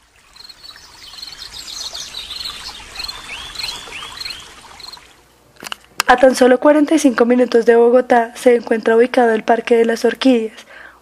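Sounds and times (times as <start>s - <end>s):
rising whistled bird calls: 0.3s - 5.0s.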